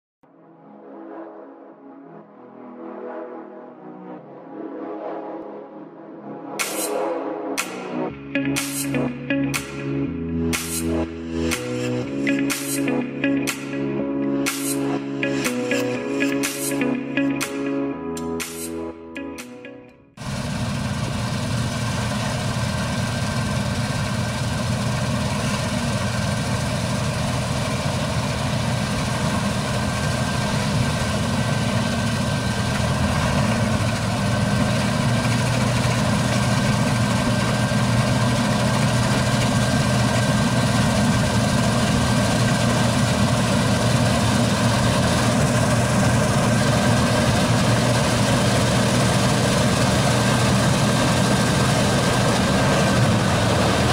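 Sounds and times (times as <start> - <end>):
combine harvester droning: 20.2 - 53.9.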